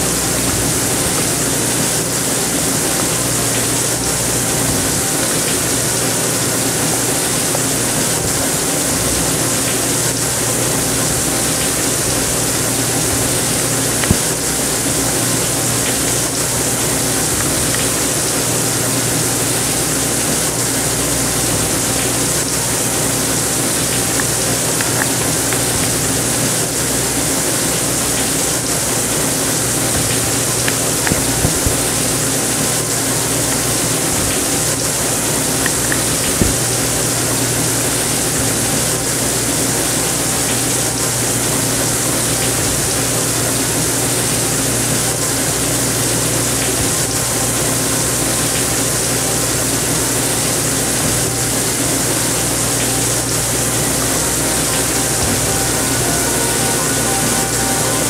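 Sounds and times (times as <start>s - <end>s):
water bubbling from air pump: 0.0s - 38.6s
low steady hum: 51.0s - 58.0s.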